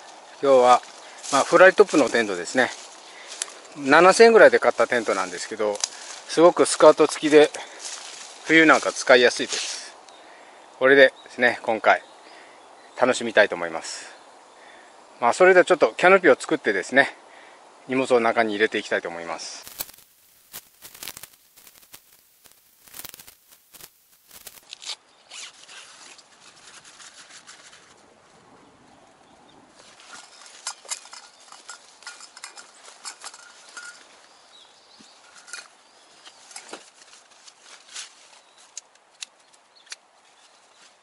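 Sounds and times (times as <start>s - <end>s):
tent poles clicking: 0.0s - 9.8s, 19.6s - 28.0s, 29.8s - 34.2s, 35.0s - 41.0s
tent fabric rustling: 19.6s - 28.0s, 36.2s - 38.7s.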